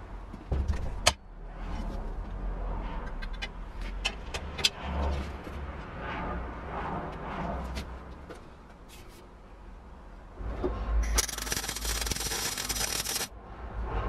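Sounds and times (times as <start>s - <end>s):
bicycle wheel spinning: 11.0s - 13.3s
sharp metallic clicks: 11.0s - 13.3s.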